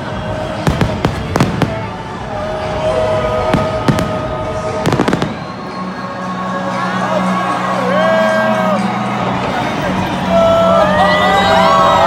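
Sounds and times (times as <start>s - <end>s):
steady background din: 0.0s - 12.0s
fireworks exploding in bangs: 0.5s - 2.2s, 3.4s - 5.8s.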